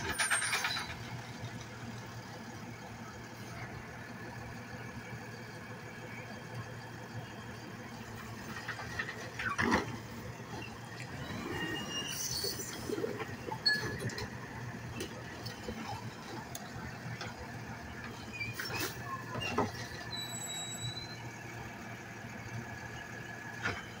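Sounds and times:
garbage truck engine running: 0:00.0 - 0:24.0
high squeal: 0:10.5 - 0:14.2, 0:18.1 - 0:21.4.

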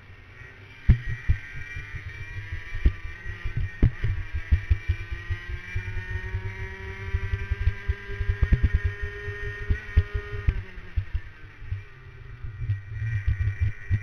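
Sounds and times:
kart engine at high revs: 0:00.0 - 0:14.0
low thumps from buffeting: 0:02.7 - 0:05.0, 0:07.2 - 0:14.0.

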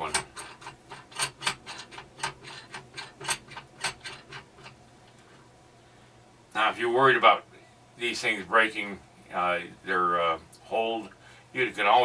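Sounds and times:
metal fitting rasping on rod: 0:00.0 - 0:04.8.

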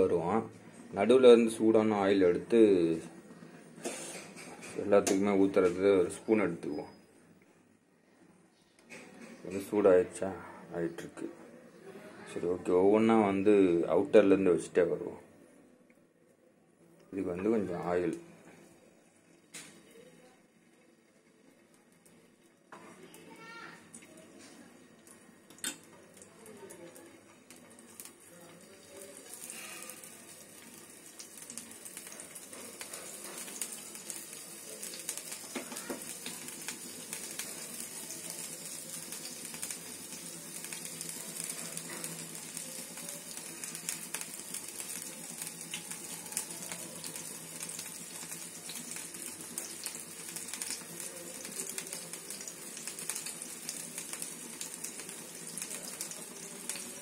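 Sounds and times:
fish sizzling in oil: 0:25.5 - 0:57.0.

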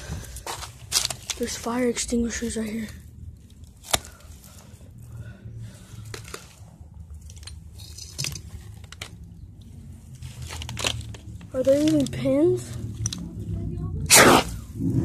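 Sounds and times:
faint clicks and rustles: 0:00.0 - 0:13.9
steady low rumble: 0:00.0 - 0:15.0.

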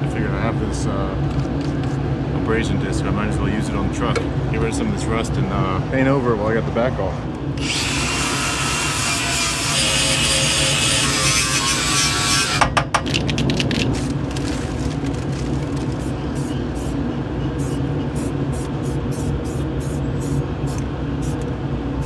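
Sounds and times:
paper rustling: 0:13.2 - 0:16.4.

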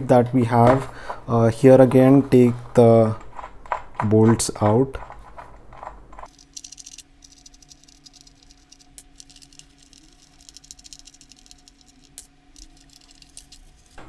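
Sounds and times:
faint steady hum: 0:00.0 - 0:14.0
metal bolts rattling on plastic: 0:02.8 - 0:14.0.

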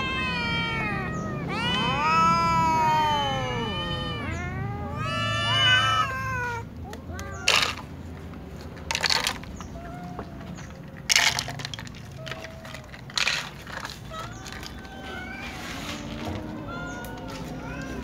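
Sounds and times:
cat meowing: 0:00.0 - 0:07.9, 0:09.6 - 0:10.9, 0:13.8 - 0:18.0
dry food rustle and clink: 0:07.4 - 0:18.0.

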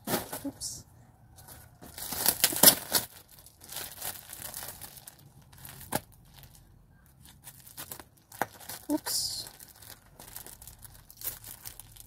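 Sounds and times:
packaging tearing and crinkling: 0:01.9 - 0:06.6, 0:07.3 - 0:12.0.

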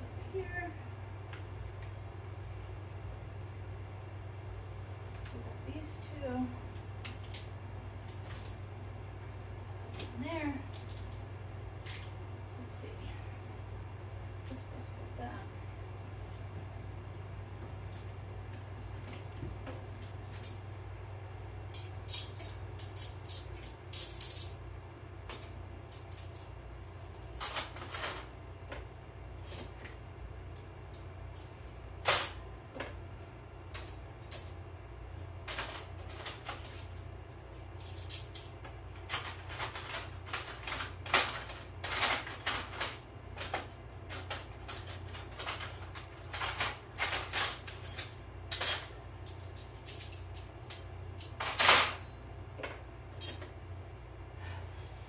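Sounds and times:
utensils clacking on countertop: 0:37.8 - 0:52.1.

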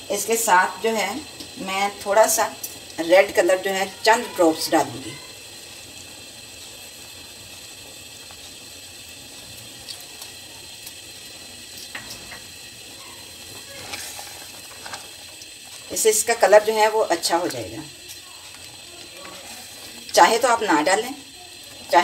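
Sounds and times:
syrup bubbling in a saucepan: 0:00.0 - 0:22.0
spatula clicking in a pan: 0:09.5 - 0:11.0, 0:11.7 - 0:12.5.

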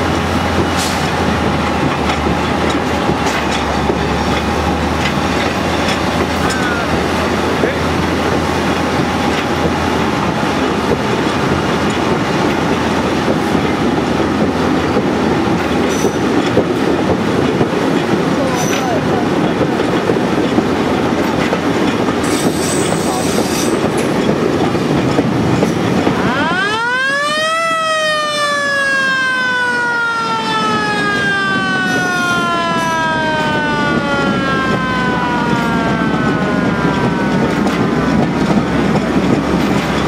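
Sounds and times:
rail machine running on track: 0:00.0 - 0:40.0
siren wailing: 0:26.0 - 0:38.1.

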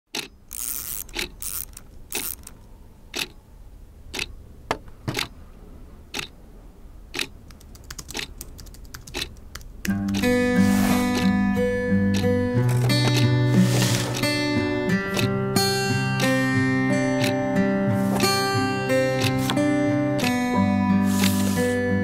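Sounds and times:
clock ticking: 0:00.1 - 0:01.4, 0:03.1 - 0:03.4, 0:04.1 - 0:04.3, 0:05.1 - 0:05.3, 0:06.1 - 0:06.4, 0:07.1 - 0:10.4, 0:11.1 - 0:11.4, 0:12.1 - 0:15.4, 0:17.2 - 0:17.4, 0:18.2 - 0:19.6, 0:20.2 - 0:20.5
acoustic guitar music: 0:09.8 - 0:22.0.

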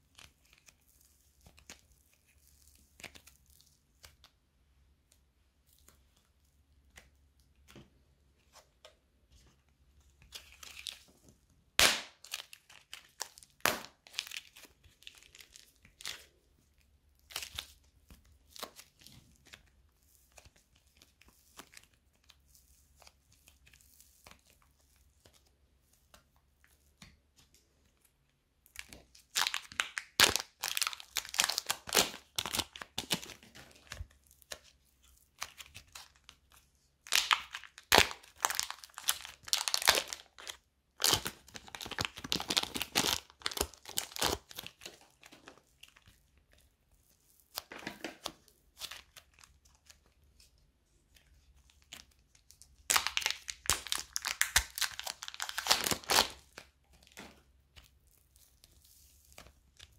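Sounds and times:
slime crackling as hands squeeze it: 0:28.6 - 0:47.7, 0:51.1 - 0:59.9.

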